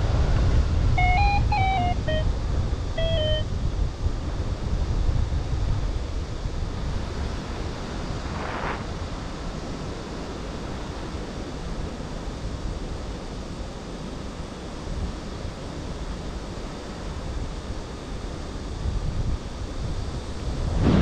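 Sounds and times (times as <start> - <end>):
wind rushing over microphone: 0.0 - 11.1, 18.8 - 21.0.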